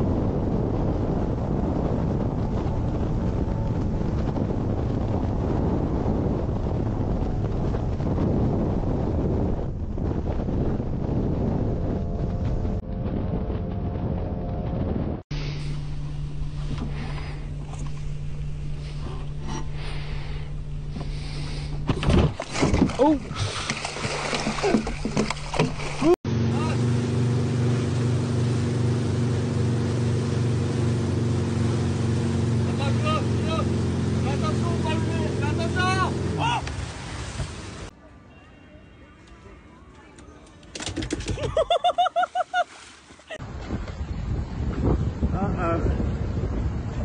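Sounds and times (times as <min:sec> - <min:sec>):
wind on microphone: 0:00.0 - 0:26.2, 0:43.3 - 0:47.0
water noise: 0:00.0 - 0:38.0, 0:40.1 - 0:47.0
race boat engine and hull: 0:00.0 - 0:41.7
loud bumps and rustles: 0:20.8 - 0:26.2.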